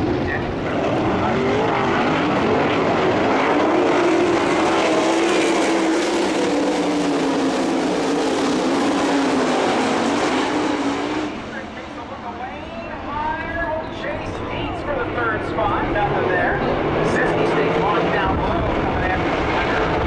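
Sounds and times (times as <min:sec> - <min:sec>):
racing car engines: 0:00.0 - 0:20.0.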